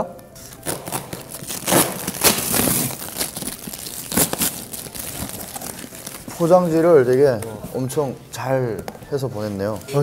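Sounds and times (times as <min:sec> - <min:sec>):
packing tape ripping off cardboard: 0:00.5 - 0:06.8.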